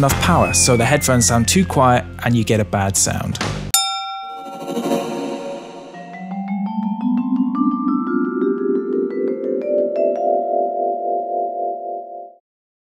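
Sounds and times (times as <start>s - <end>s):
mallet percussion notes: 3.8s - 11.7s
sustained rising chord: 4.3s - 7.5s.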